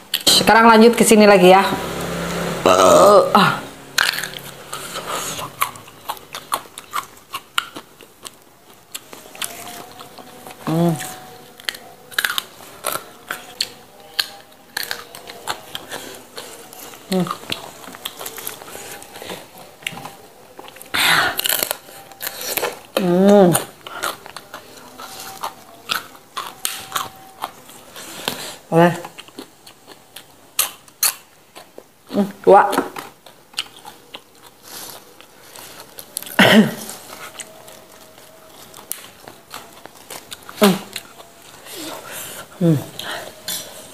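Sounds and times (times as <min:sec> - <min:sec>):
chewing leafy greens: 0:00.0 - 0:01.2, 0:01.8 - 0:43.9.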